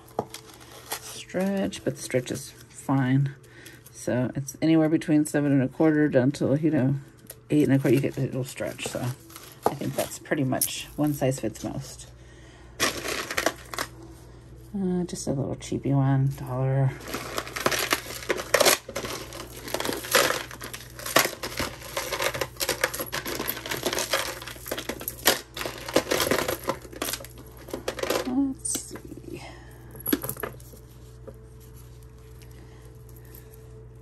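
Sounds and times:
jewelry clinking and jangling: 7.4s - 12.0s, 12.8s - 14.0s, 16.3s - 33.8s.

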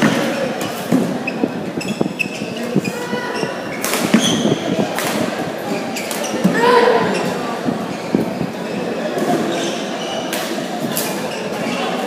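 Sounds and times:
shoe squeaks on court floor: 0.6s - 4.7s, 5.8s - 6.5s, 9.3s - 10.4s
rackets hitting shuttlecock: 3.8s - 4.4s.

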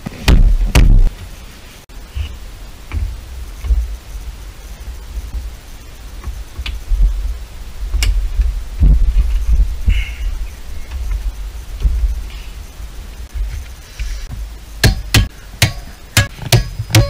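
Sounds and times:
rustling: 0.0s - 14.6s
low rumble: 1.9s - 13.5s.

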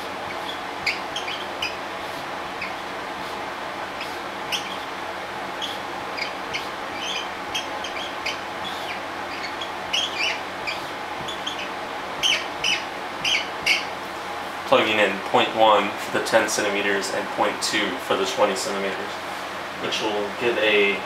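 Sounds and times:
marker squeaking on whiteboard: 0.0s - 3.4s, 4.0s - 4.9s, 5.6s - 14.0s.

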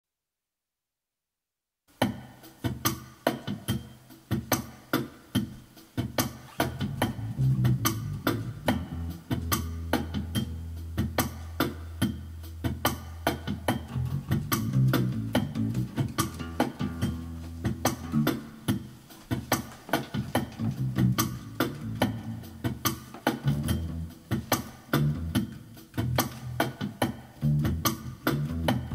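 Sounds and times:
drum machine beat: 2.0s - 28.9s
electric bass line: 6.5s - 19.0s, 20.1s - 28.9s.

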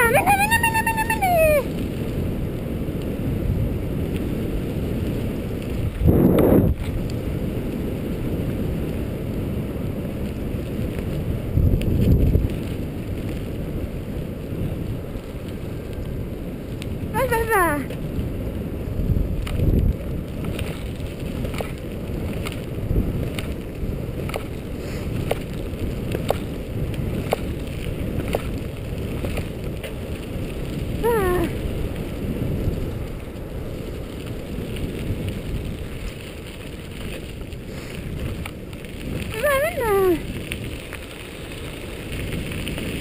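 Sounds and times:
bike tyres on gravel: 0.0s - 43.0s
wind on microphone: 0.0s - 43.0s
short high falling call: 0.1s - 1.7s
bike clicking and rattling: 1.7s - 17.1s, 17.8s - 43.0s.

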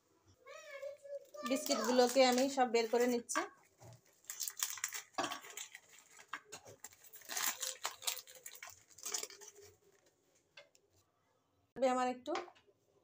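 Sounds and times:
plastic wrapper crinkling: 1.4s - 10.1s.

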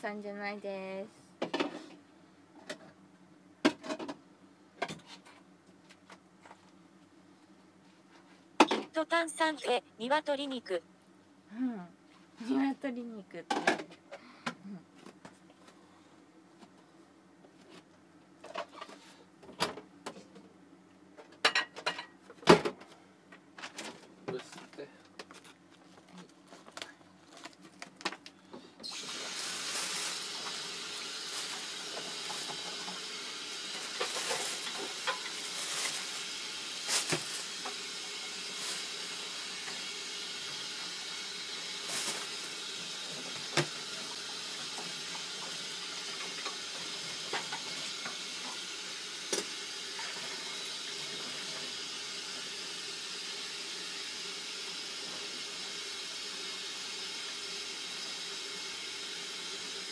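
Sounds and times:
tap water running into sink: 28.8s - 59.9s.

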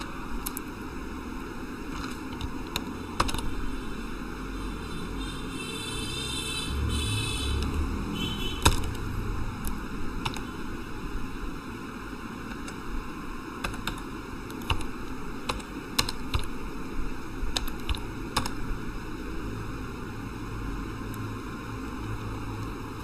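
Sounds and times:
steady background hiss: 0.0s - 23.0s
keyboard keys clicking: 1.9s - 3.6s, 8.6s - 9.0s, 9.6s - 10.5s, 13.6s - 16.6s, 17.5s - 18.6s.

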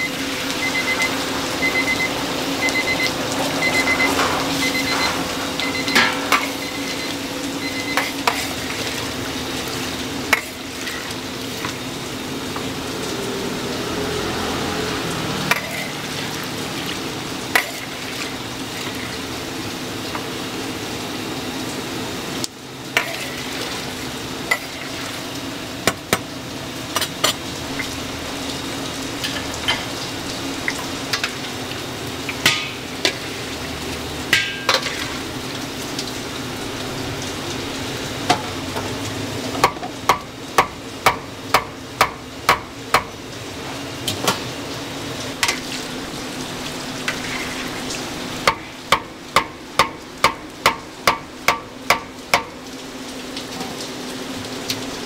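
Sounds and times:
oil sizzling in deep fryer: 0.0s - 55.0s
short high electronic beeps: 2.7s - 3.0s, 3.6s - 6.0s, 6.6s - 8.1s.

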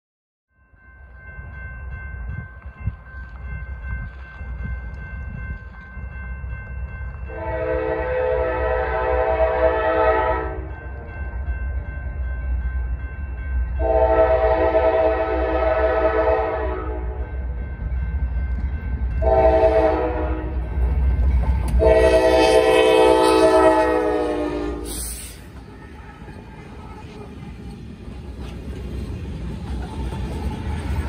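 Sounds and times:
locomotive air horn blasts: 7.3s - 10.7s, 13.8s - 17.2s, 19.2s - 20.6s, 21.7s - 25.4s.

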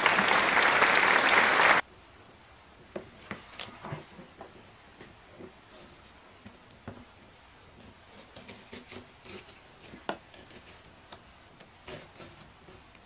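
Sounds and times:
applause: 0.0s - 1.8s.

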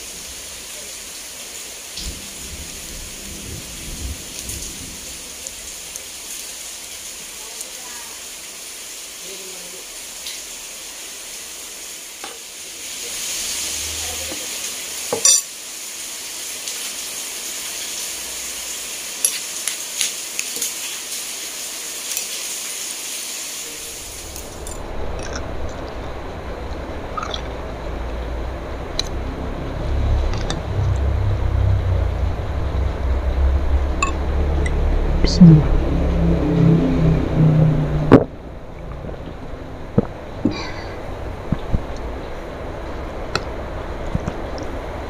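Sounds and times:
steady hiss: 0.0s - 34.1s
low rumble: 2.0s - 6.0s, 23.8s - 45.0s.

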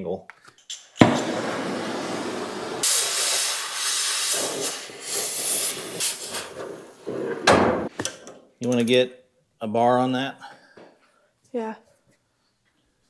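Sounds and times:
cutting torch hissing: 1.0s - 7.5s.

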